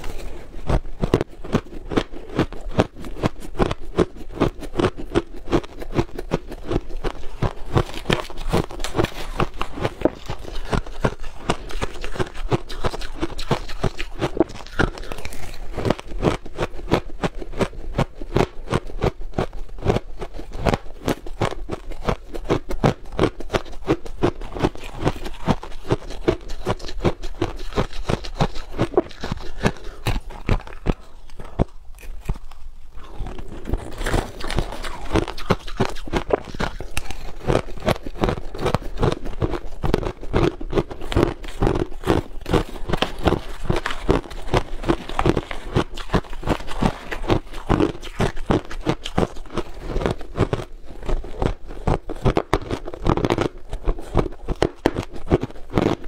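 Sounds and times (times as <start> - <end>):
crushed ice crunching in mouth: 0.0 - 56.0.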